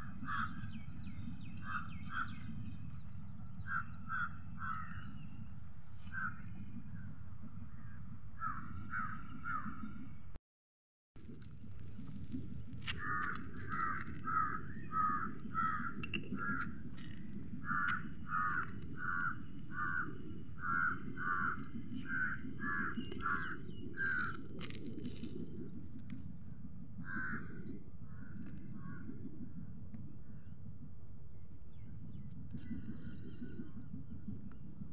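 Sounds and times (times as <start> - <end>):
crow cawing: 0.0 - 0.8, 1.6 - 2.5, 3.6 - 5.1, 6.1 - 6.4, 13.0 - 16.6, 17.6 - 24.4, 27.0 - 27.5
steady low rumble: 0.0 - 10.4, 11.2 - 34.9.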